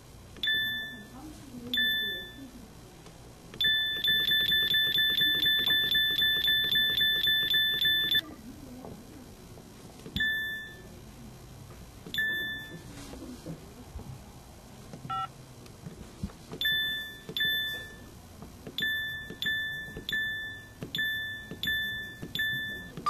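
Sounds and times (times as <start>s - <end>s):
rapid keypad beeps: 0.4s - 1.1s, 1.7s - 2.5s, 3.6s - 8.2s, 10.2s - 10.8s, 12.1s - 12.8s, 15.1s - 15.3s, 16.6s - 18.1s, 18.8s - 23.0s
single key beeps: 0.4s - 1.2s, 10.2s - 10.9s, 16.6s - 18.0s, 18.8s - 23.0s.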